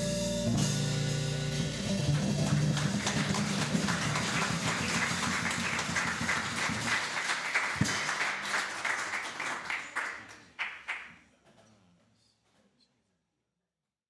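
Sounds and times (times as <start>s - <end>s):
audience applauding: 2.0s - 11.1s.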